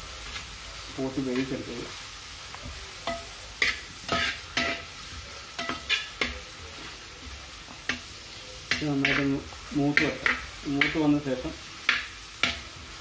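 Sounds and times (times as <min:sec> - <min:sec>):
onions sizzling in hot oil: 0:00.0 - 0:13.0
spatula scraping a pan: 0:03.0 - 0:08.1.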